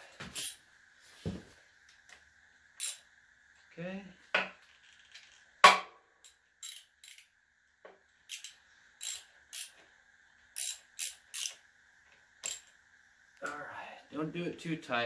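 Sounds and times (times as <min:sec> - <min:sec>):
faint high whine: 0:00.0 - 0:15.0
ratchet wrench clicking: 0:00.3 - 0:00.6, 0:02.8 - 0:03.0, 0:06.2 - 0:07.3, 0:08.3 - 0:09.8, 0:10.5 - 0:11.6, 0:12.4 - 0:12.8.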